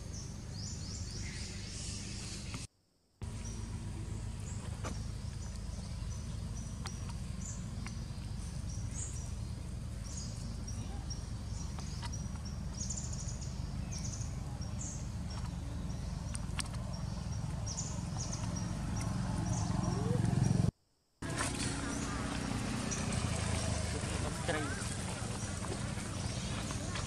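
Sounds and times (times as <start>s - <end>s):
steady low rumble: 3.2s - 27.0s.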